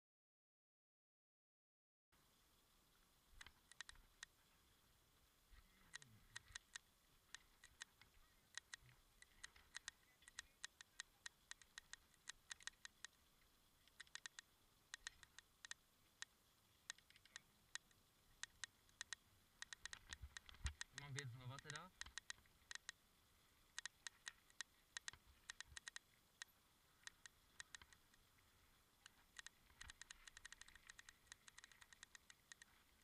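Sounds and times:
background hiss: 2.2s - 33.0s
faint sharp clicks: 3.4s - 4.4s, 5.6s - 23.0s, 23.7s - 33.0s.

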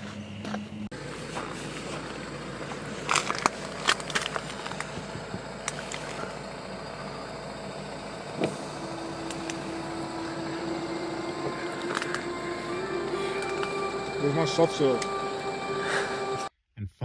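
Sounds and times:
steady hum note: 0.0s - 16.5s
background rumble: 1.0s - 14.2s.

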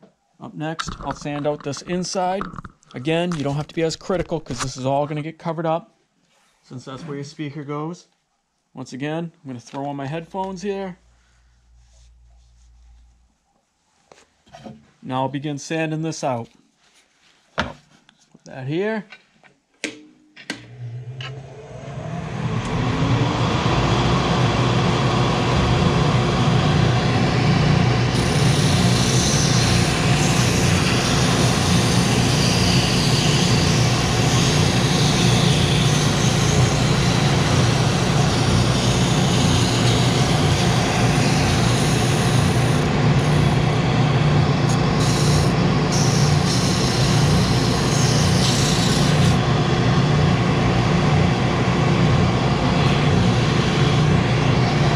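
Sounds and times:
spindle sander motor running: 21.0s - 54.9s
wood being sanded: 28.1s - 43.7s, 44.7s - 49.4s.

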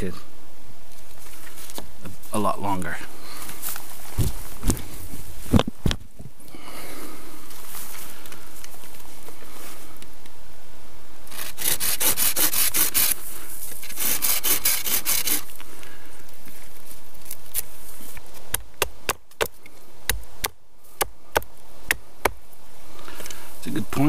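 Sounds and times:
hand saw cutting wood: 11.3s - 13.2s, 13.8s - 15.5s.

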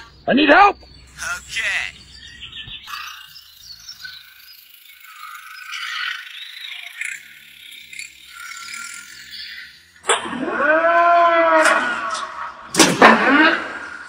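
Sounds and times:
toy excavator gear motor: 2.8s - 10.1s.

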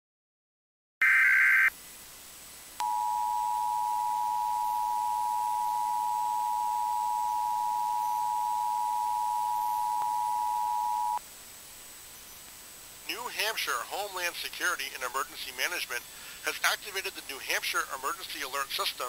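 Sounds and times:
two-tone alert signal: 2.8s - 11.2s.

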